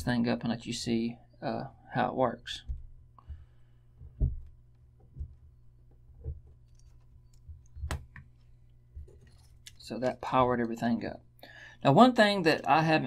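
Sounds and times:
low steady hum: 0.0s - 13.0s
soft handling bumps: 2.5s - 9.6s.

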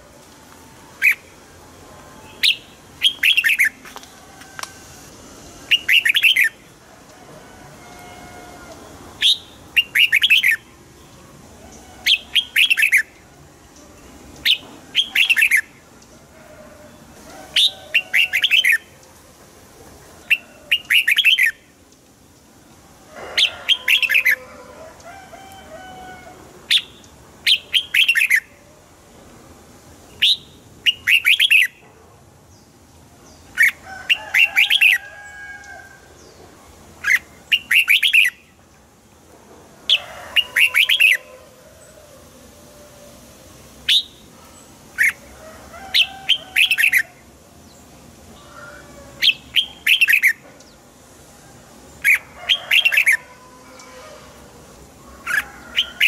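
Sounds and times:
bird chirping song: 2.2s - 4.1s, 5.7s - 6.7s, 8.8s - 16.2s, 20.2s - 21.7s, 26.7s - 28.5s, 30.1s - 31.9s, 36.2s - 38.6s, 43.8s - 45.3s, 49.2s - 50.9s.

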